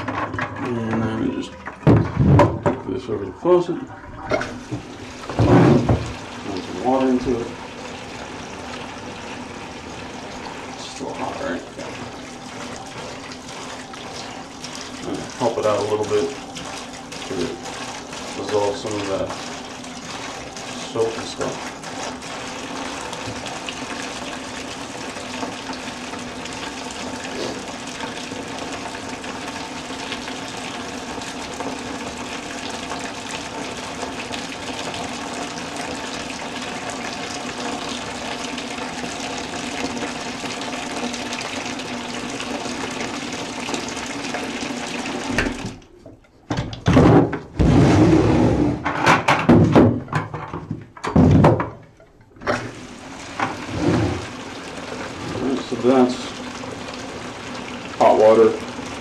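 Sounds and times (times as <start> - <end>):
plastic buckets knocking: 0.0 - 2.9, 4.4 - 7.4, 45.4 - 47.9, 48.8 - 52.6
faucet water running into bucket: 0.0 - 48.5, 49.5 - 59.0.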